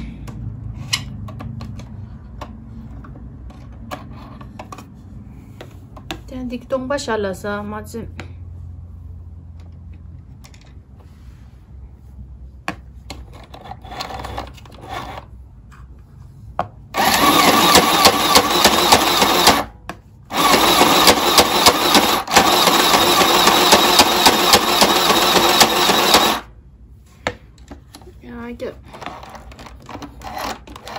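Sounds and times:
sewing machine running: 17.0s - 19.7s, 20.3s - 26.5s.

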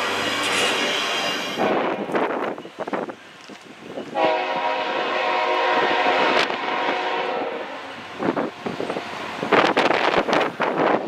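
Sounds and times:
locomotive air horn blast: 4.1s - 7.9s.

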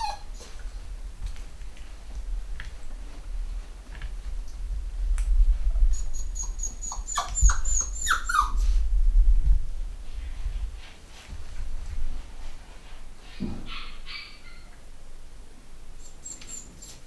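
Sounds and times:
puppy whimpering: 0.0s - 0.6s, 5.9s - 8.7s, 16.0s - 17.0s
low rumble: 0.5s - 6.4s, 7.4s - 12.5s.

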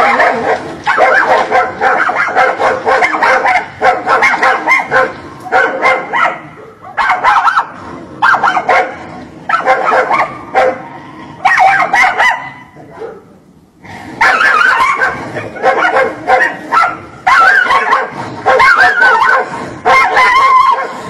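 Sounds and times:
dog barking: 0.0s - 13.3s, 14.2s - 21.0s.

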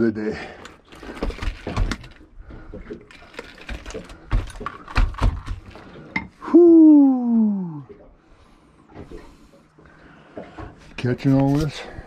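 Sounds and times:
fishing tackle knocks and clicks: 0.6s - 6.3s.

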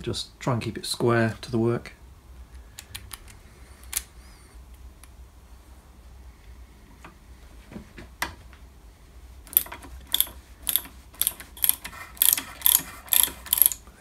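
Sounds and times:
ratchet clicking: 9.5s - 13.8s.

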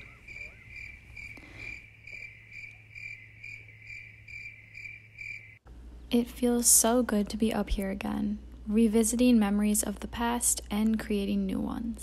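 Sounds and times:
crickets chirping: 0.0s - 5.6s.

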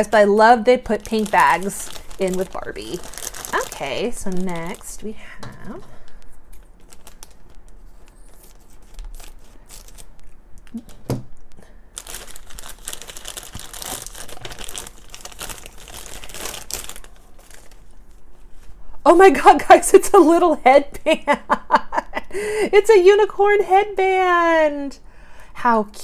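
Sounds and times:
plastic bag crinkling: 0.0s - 11.0s, 11.9s - 18.8s.

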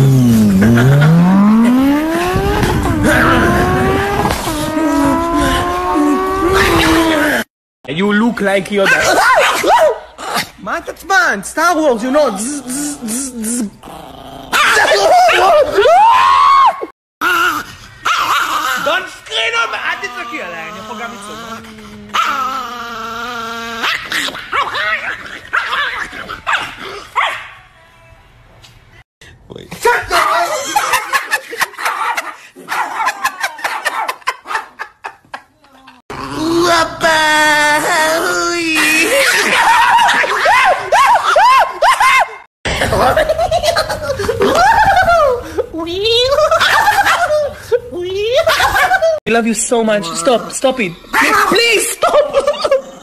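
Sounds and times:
small dog barking and yipping: 8.8s - 10.1s, 17.2s - 18.9s, 23.8s - 27.6s, 31.8s - 34.7s
dog growling howl: 17.2s - 25.1s.

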